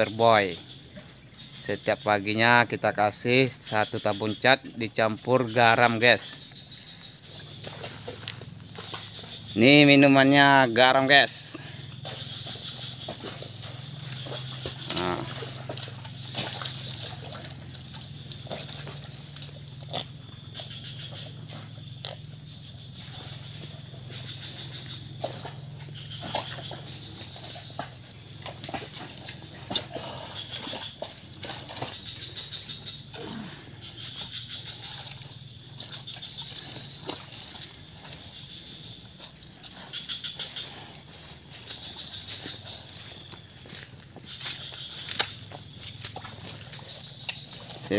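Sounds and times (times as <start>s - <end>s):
cattle slurping water: 11.8s - 22.4s, 23.0s - 47.9s.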